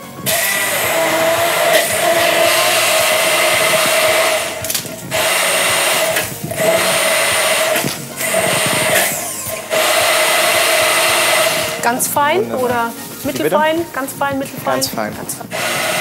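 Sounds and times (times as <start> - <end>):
blender motor whirring: 0.0 - 12.2, 15.4 - 16.0.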